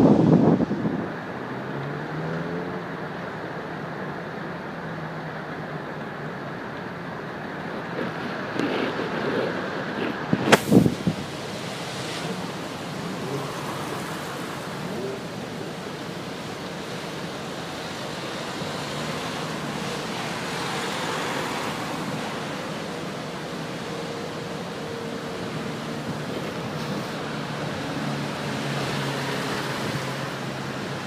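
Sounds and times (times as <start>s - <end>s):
wind: 0.0s - 31.0s
storm surf breaking against wall: 7.7s - 31.0s.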